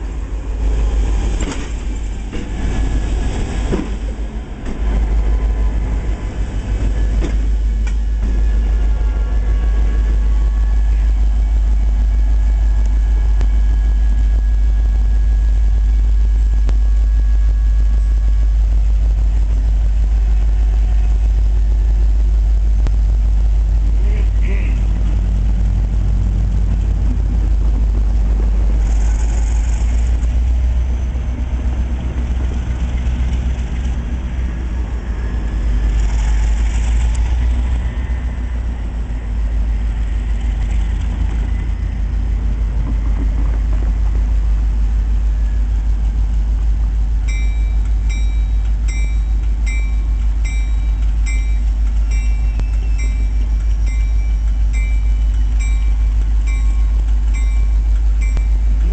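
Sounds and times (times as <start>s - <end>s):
locomotive engine rumbling: 0.0s - 58.9s
locomotive bell ringing: 47.2s - 58.9s.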